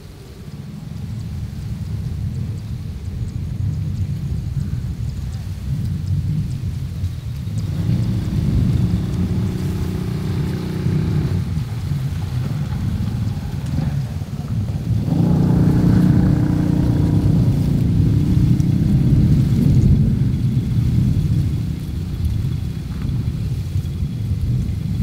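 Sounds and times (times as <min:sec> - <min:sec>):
wind buffeting microphone: 0:00.0 - 0:25.0
passing vehicle engine humming: 0:07.2 - 0:23.8.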